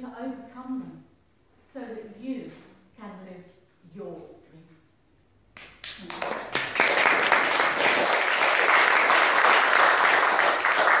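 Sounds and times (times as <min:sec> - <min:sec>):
audience applauding: 0:05.8 - 0:11.0.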